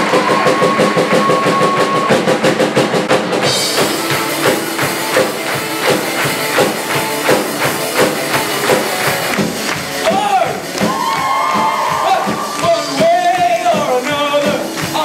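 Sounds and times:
electric guitar: 0:00.0 - 0:13.0
drum kit steady beat: 0:00.0 - 0:15.0.

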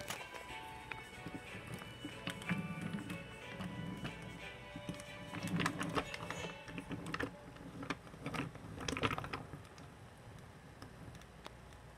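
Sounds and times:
toy train wheels rumbling: 0:00.0 - 0:09.5.

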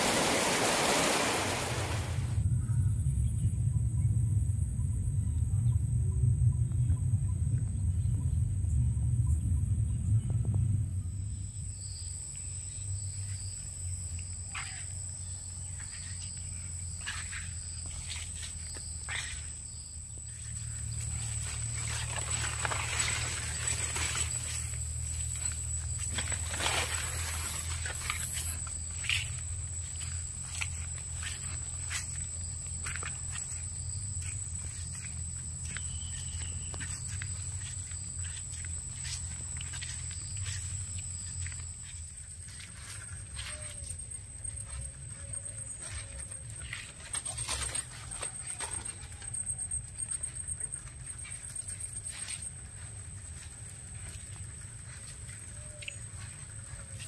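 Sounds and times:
low hum: 0:00.0 - 0:14.2, 0:15.4 - 0:57.0
insects droning: 0:00.0 - 0:57.0
low rumble: 0:02.2 - 0:11.8.

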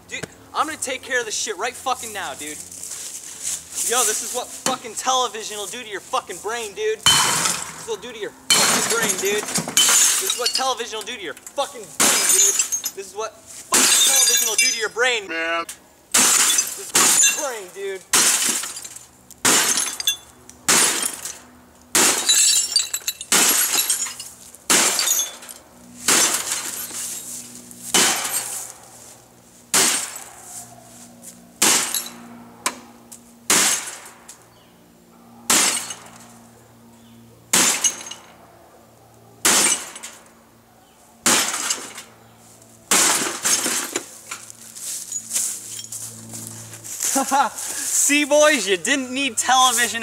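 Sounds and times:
glass and plastic breaking: 0:08.5 - 0:11.1, 0:12.0 - 0:13.0, 0:13.7 - 0:14.9, 0:16.2 - 0:21.4, 0:22.0 - 0:27.2, 0:35.5 - 0:36.2, 0:37.6 - 0:38.3, 0:39.5 - 0:40.2, 0:41.3 - 0:42.1, 0:42.9 - 0:44.4
television being smashed: 0:16.2 - 0:17.5, 0:18.1 - 0:18.8, 0:19.4 - 0:19.8, 0:23.3 - 0:24.0, 0:24.7 - 0:25.3, 0:26.1 - 0:26.7, 0:42.9 - 0:44.0.

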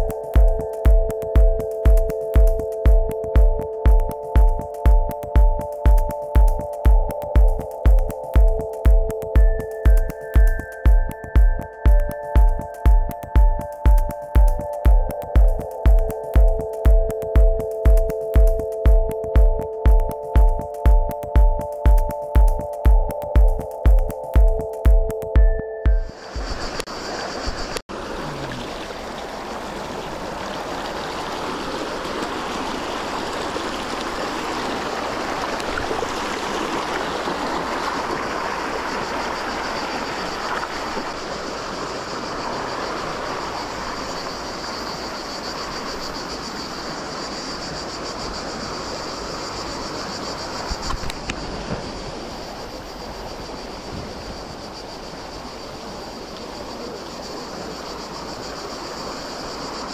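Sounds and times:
river water rushing: 0:26.2 - 0:59.9.

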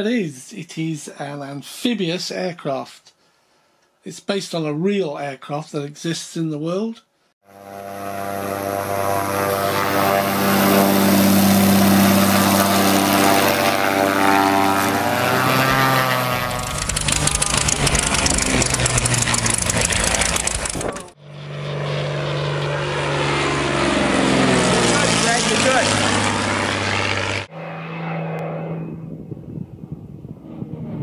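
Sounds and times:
model plane motor and propeller: 0:07.5 - 0:29.2.

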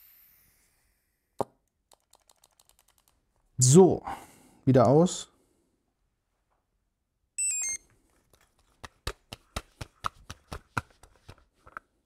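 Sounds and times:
descending electronic beeps: 0:07.4 - 0:07.8.

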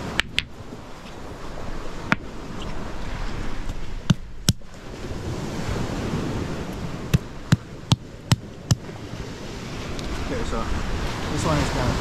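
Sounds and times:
surf: 0:00.0 - 0:12.0
stone knocking on stone: 0:00.1 - 0:00.6.

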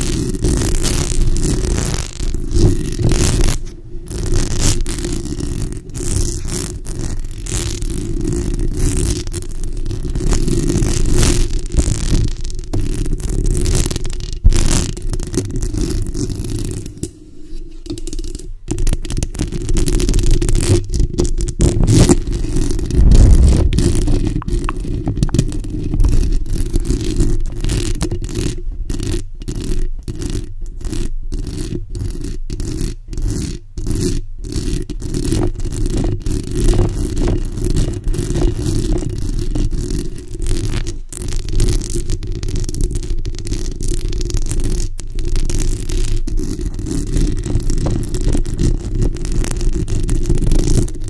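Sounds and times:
nails scratching microphone grille: 0:21.9 - 0:36.1.

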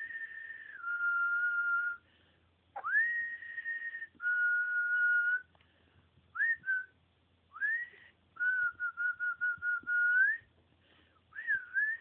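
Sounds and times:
person whistling: 0:00.0 - 0:02.0, 0:02.8 - 0:05.5, 0:06.4 - 0:06.9, 0:07.6 - 0:10.5, 0:11.3 - 0:12.0.

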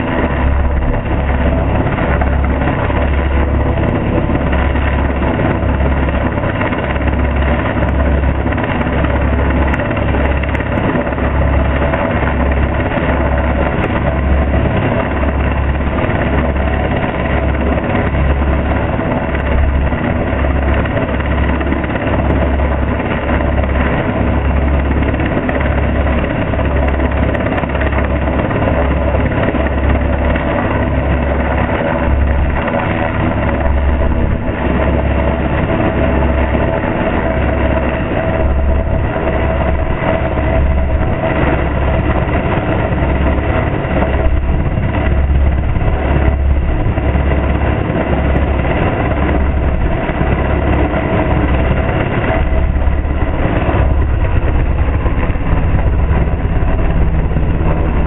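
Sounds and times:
helicopter hovering overhead: 0:00.0 - 0:58.0.

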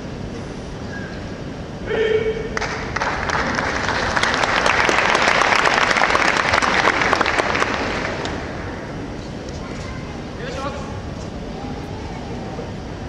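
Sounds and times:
audience applause: 0:02.6 - 0:08.8.

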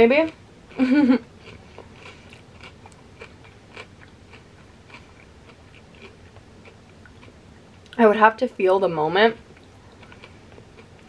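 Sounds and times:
person chewing crunchy chip: 0:00.7 - 0:07.4, 0:09.6 - 0:11.0.

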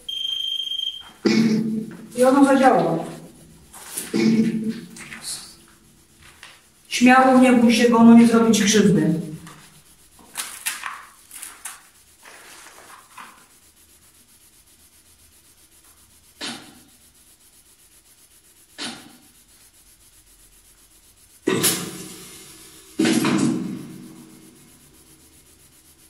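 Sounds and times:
faint rubbing and scraping: 0:01.0 - 0:22.1, 0:22.9 - 0:26.0.

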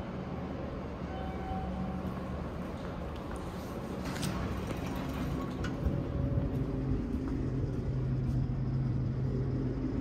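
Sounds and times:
elevator hum and rumble: 0:00.0 - 0:10.0
low drone: 0:05.0 - 0:10.0.

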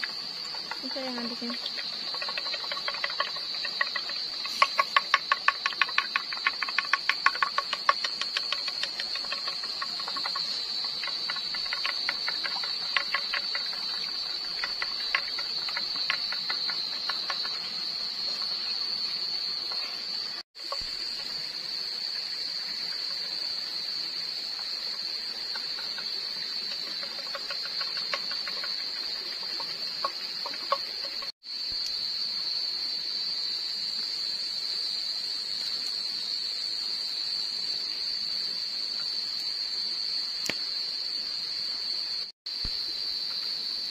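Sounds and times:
night insects chorus: 0:00.0 - 0:43.9
bamboo stick stirring egg: 0:00.4 - 0:18.9, 0:24.6 - 0:31.3.

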